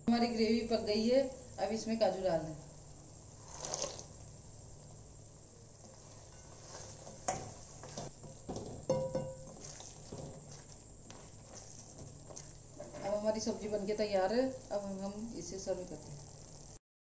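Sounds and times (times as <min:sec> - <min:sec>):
wooden spatula stirring gravy: 0:03.2 - 0:08.8, 0:09.5 - 0:15.0
sharp ringing metallic knock: 0:08.9 - 0:09.4.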